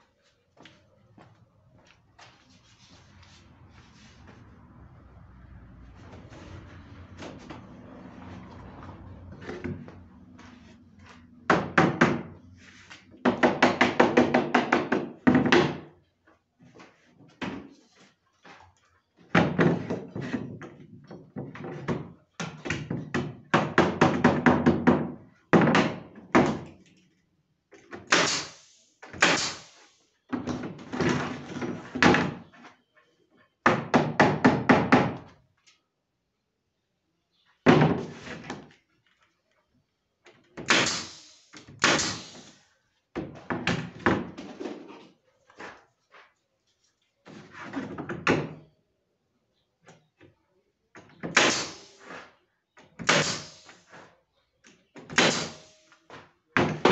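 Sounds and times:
pneumatic nailer knocking on wood: 28.0s - 29.7s, 40.6s - 42.6s, 51.2s - 52.0s, 53.0s - 54.0s, 55.1s - 55.8s.

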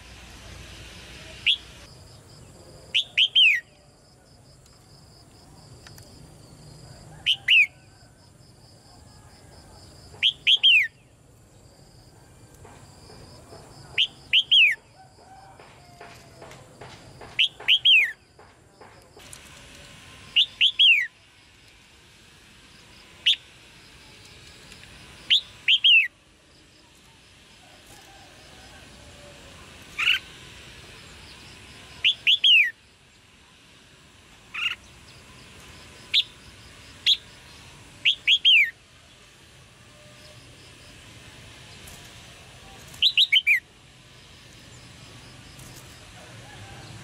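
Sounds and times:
bird sharp chirping calls: 3.0s - 3.8s, 10.1s - 11.0s, 13.9s - 14.8s, 17.2s - 18.2s, 25.3s - 26.1s, 32.0s - 32.7s, 38.0s - 38.8s, 43.0s - 43.6s.

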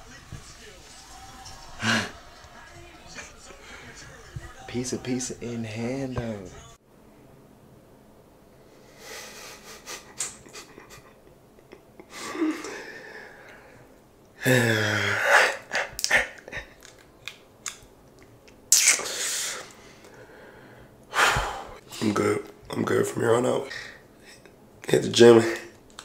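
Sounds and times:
breathy noises: 3.1s - 4.6s, 12.0s - 17.0s, 19.0s - 22.2s
loud burst of breath: 8.7s - 10.1s, 19.0s - 21.8s
man grunting: 14.4s - 16.4s
floss clicks and snaps in mouth: 16.8s - 18.6s.

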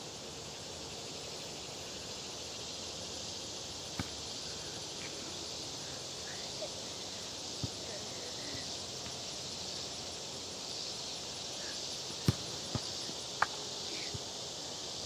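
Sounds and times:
steady high background hiss: 0.0s - 15.0s
ball kicked thump: 4.0s - 4.2s, 12.2s - 13.6s.

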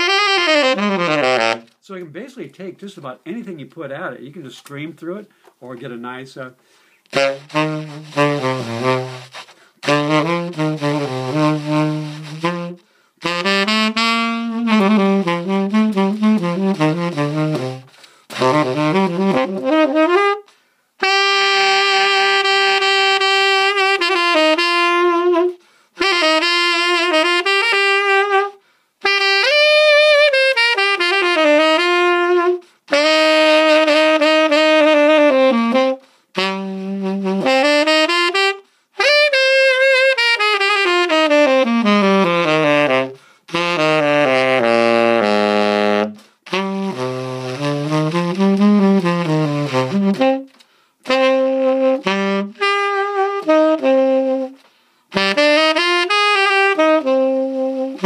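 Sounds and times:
tenor saxophone jazz solo: 0.0s - 2.0s, 3.0s - 58.0s.

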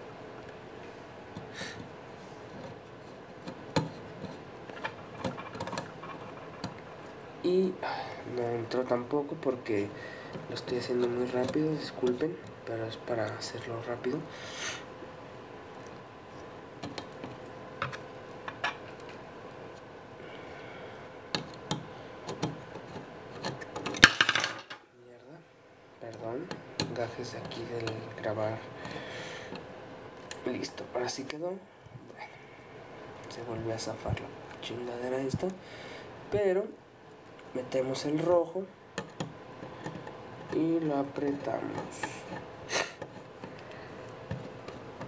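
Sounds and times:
faint steady hum: 0.0s - 45.0s.

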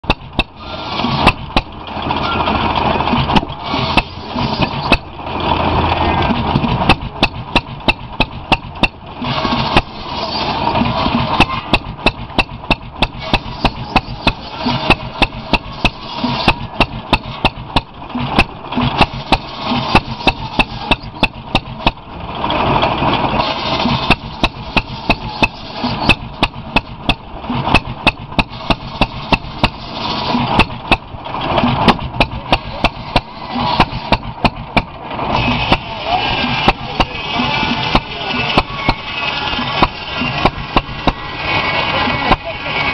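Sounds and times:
gas engine exhaust popping: 0.0s - 42.9s
circular saw cutting wood: 0.5s - 1.6s, 3.4s - 5.1s, 7.8s - 21.7s, 23.4s - 26.8s, 31.6s - 34.6s, 35.3s - 42.9s.

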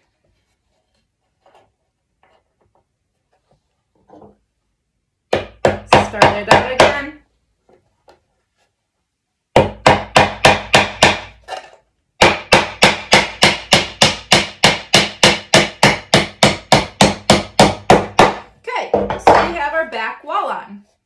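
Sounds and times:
hammer driving nail into wood: 9.6s - 18.5s.

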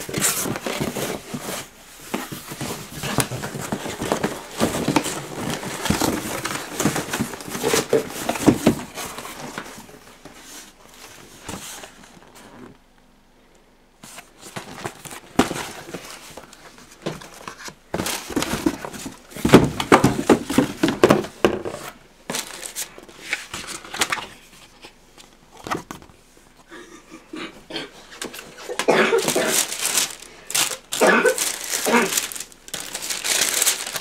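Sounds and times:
tissue paper rustling: 0.0s - 12.4s, 22.3s - 24.1s, 28.6s - 34.0s.

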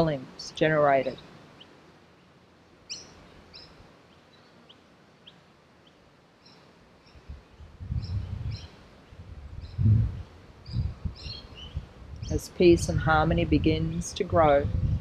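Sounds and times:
small birds chirping: 1.0s - 12.6s
low rumble: 7.3s - 8.6s, 9.2s - 15.0s.

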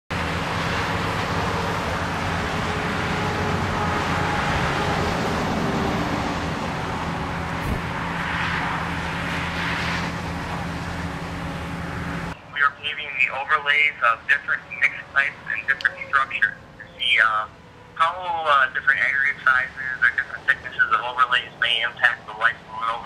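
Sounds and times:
diesel engine running: 0.1s - 21.5s
short knock: 7.6s - 8.0s.

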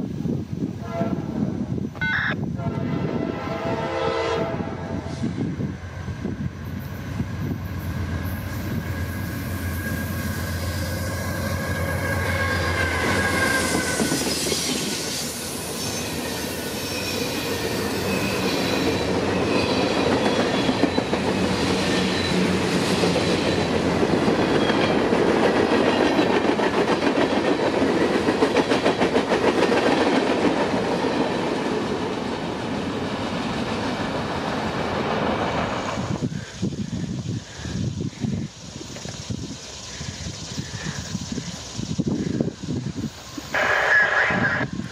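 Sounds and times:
locomotive multi-tone horn: 0.8s - 1.4s, 2.0s - 5.1s, 43.5s - 44.8s.

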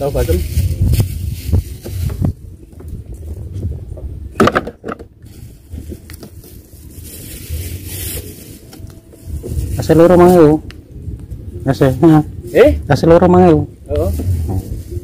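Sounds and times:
plastic bags rustling: 0.0s - 3.5s, 5.0s - 10.6s, 13.9s - 15.0s
wind on microphone: 0.0s - 15.0s.

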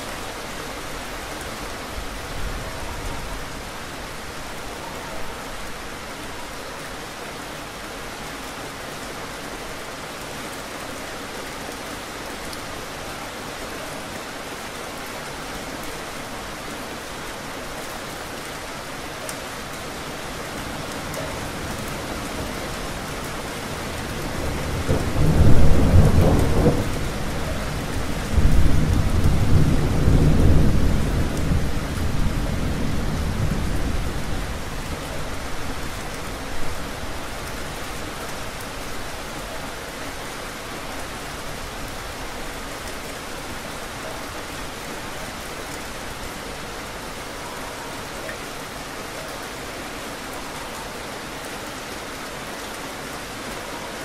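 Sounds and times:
steady rain falling: 0.0s - 54.0s
thunder rumbling: 24.3s - 35.9s.

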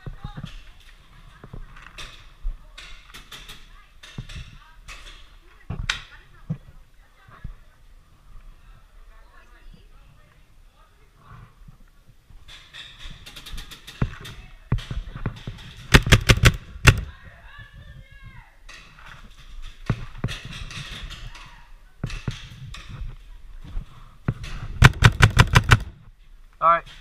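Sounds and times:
paintball markers firing: 15.8s - 17.1s, 24.8s - 26.0s.

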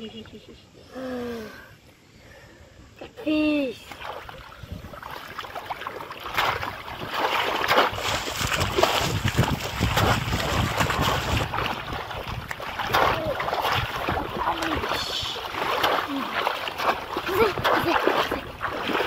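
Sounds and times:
shallow water splashing: 3.8s - 19.0s.

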